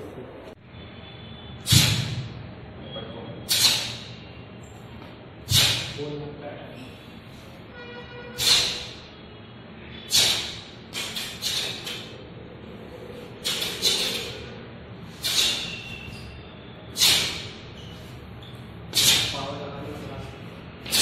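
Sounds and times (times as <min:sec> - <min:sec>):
sharp bursts with punches: 0:01.6 - 0:02.4, 0:03.5 - 0:04.2, 0:05.4 - 0:06.0, 0:08.4 - 0:09.1, 0:10.1 - 0:12.2, 0:13.4 - 0:14.4, 0:15.2 - 0:15.8, 0:16.9 - 0:17.7, 0:18.9 - 0:19.5.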